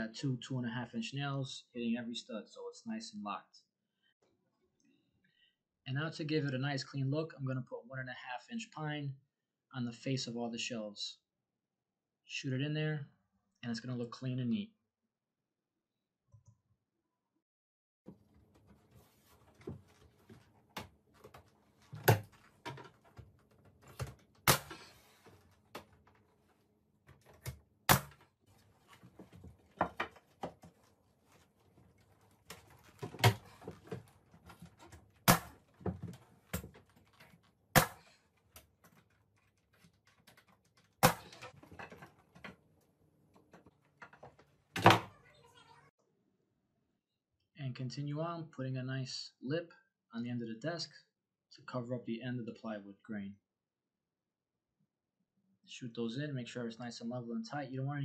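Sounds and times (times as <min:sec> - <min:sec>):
wood knocking while handled: 0:28.9 - 0:38.0.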